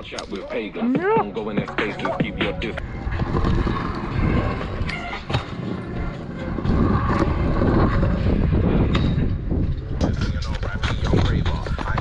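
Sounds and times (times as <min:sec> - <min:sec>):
wind rumbling on microphone: 0:02.7 - 0:12.0.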